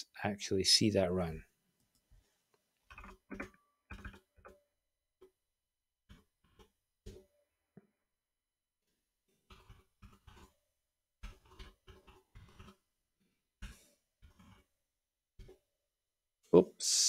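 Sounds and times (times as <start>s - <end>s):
faint keyboard typing: 2.8s - 4.6s.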